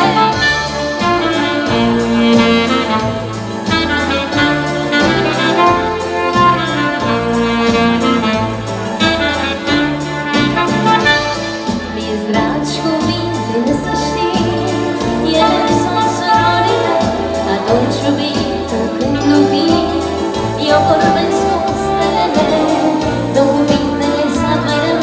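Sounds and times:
steady beat: 0:00.0 - 0:12.0
keyboard: 0:00.0 - 0:25.0
saxophone: 0:00.0 - 0:25.0
trumpet: 0:00.0 - 0:25.0.

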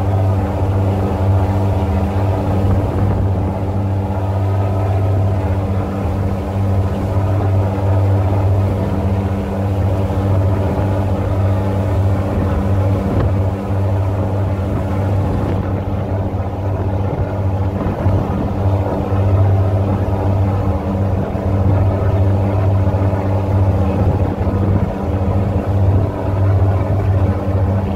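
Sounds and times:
boat engine humming: 0:00.0 - 0:27.9.

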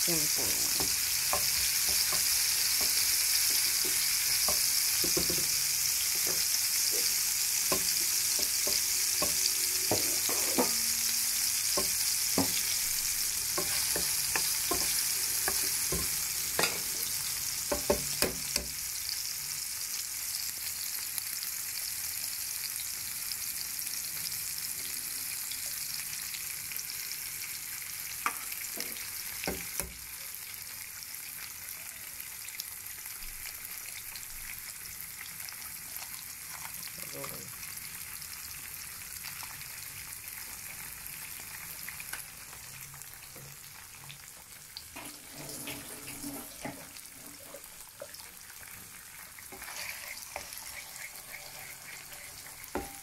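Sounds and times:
food sizzling in hot oil: 0:00.0 - 0:53.0
wooden spatula scraping pan: 0:08.4 - 0:11.1, 0:13.5 - 0:17.2, 0:49.5 - 0:53.0.

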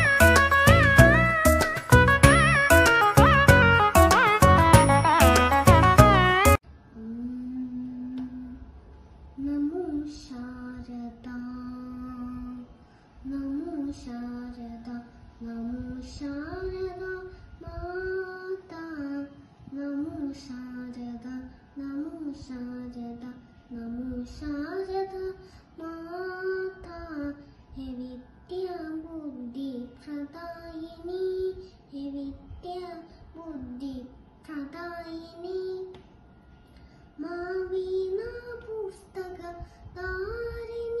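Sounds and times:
boy singing: 0:09.4 - 0:36.0, 0:37.2 - 0:41.0.

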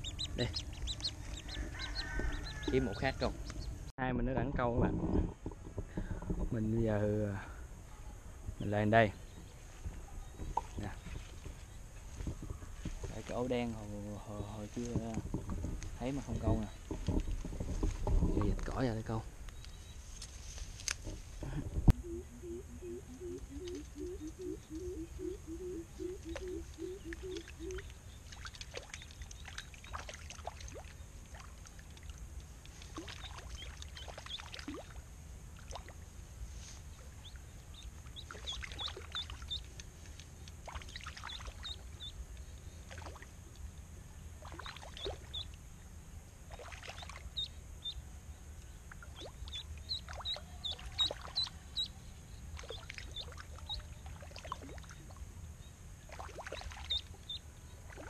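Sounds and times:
duckling chirping: 0:00.0 - 0:03.8, 0:22.0 - 0:27.9, 0:37.7 - 0:39.6, 0:41.3 - 0:42.2, 0:45.0 - 0:45.5, 0:47.4 - 0:48.0, 0:49.4 - 0:52.1, 0:56.8 - 0:57.4
water splashing and sloshing: 0:00.0 - 0:03.9, 0:09.3 - 0:21.4, 0:26.2 - 0:42.1, 0:42.7 - 0:45.7, 0:46.4 - 0:47.4, 0:48.9 - 0:51.8, 0:52.5 - 0:55.3, 0:56.0 - 0:58.0.

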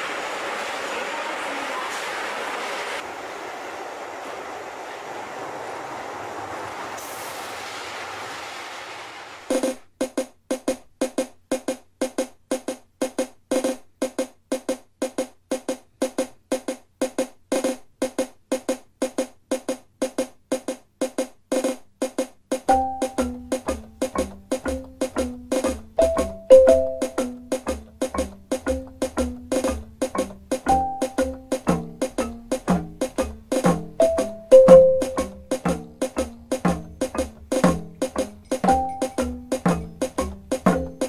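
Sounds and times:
woody percussive notes: 0:22.6 - 0:41.0
moving melody: 0:22.8 - 0:32.6, 0:34.0 - 0:36.4, 0:38.0 - 0:41.0.

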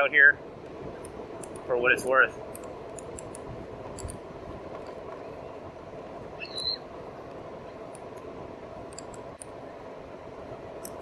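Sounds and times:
electric bike riding hum: 0:00.0 - 0:11.0
short high rising chirp: 0:06.4 - 0:06.8.

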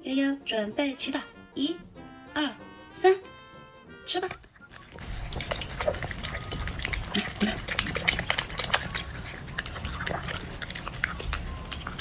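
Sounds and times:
dog chewing food: 0:04.4 - 0:12.0
dog smacking and licking: 0:04.4 - 0:12.0.

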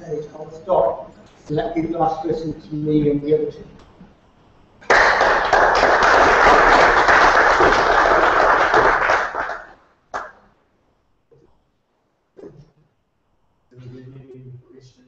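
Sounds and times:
audience applauding: 0:04.8 - 0:10.4.

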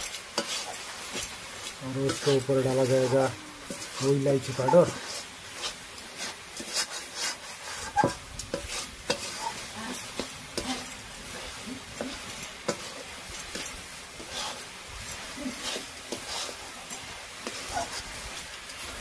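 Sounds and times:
metal spatula scraping a pan: 0:00.0 - 0:19.0.

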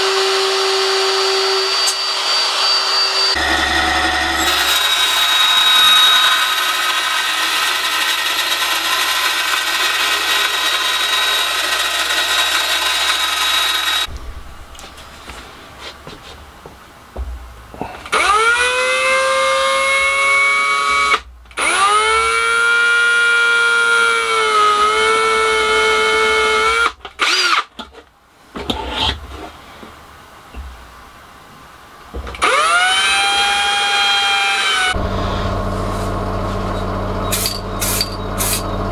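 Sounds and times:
bandsaw running: 0:00.0 - 0:14.1
cordless drill whining: 0:00.0 - 0:14.1, 0:18.1 - 0:27.6, 0:32.4 - 0:35.0.

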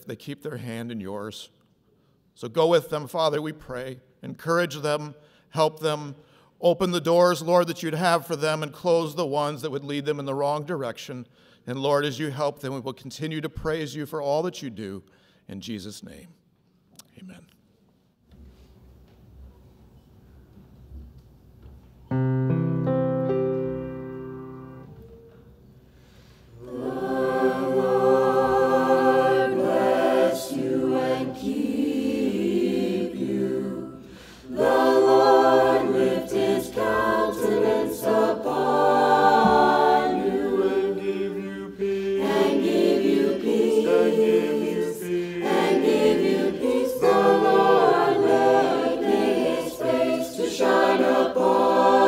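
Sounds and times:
mixed choir singing: 0:26.6 - 0:52.0.

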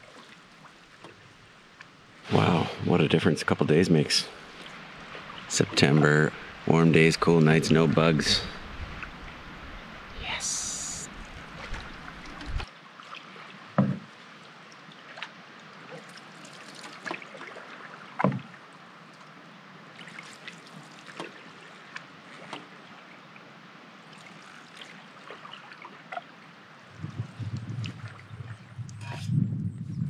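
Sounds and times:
small water splashes: 0:00.0 - 0:02.5, 0:04.3 - 0:06.8, 0:07.7 - 0:28.8
water dripping off paddle: 0:10.7 - 0:12.7
paddle plunging into water: 0:11.1 - 0:12.7.

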